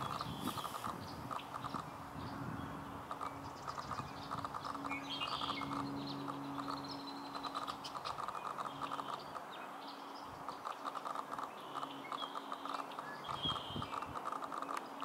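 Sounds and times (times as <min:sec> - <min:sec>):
ducks' bills clicking: 0:00.0 - 0:01.9, 0:03.0 - 0:09.5, 0:10.4 - 0:15.0
low steady hum: 0:01.8 - 0:13.5.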